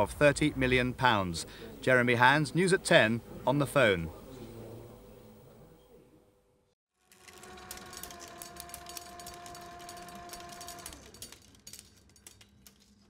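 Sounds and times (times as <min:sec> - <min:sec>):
film table motor hum: 0:07.0 - 0:12.9
film reel clicking and chattering: 0:07.0 - 0:13.0.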